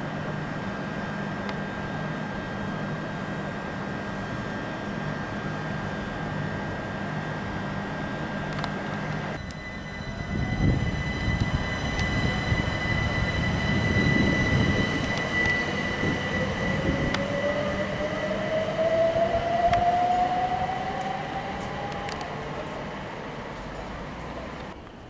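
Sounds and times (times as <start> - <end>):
steady high whine: 0.0 - 25.0
traction motor whine rising: 4.4 - 24.8
train wheels rumbling on rail: 8.5 - 25.0.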